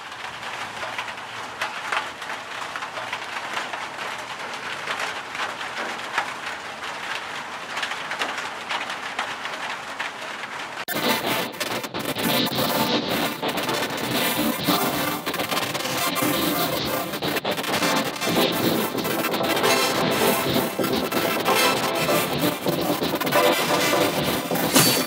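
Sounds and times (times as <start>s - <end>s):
crackling electronic noise texture: 10.8s - 25.0s
busy electronic music: 10.9s - 25.0s.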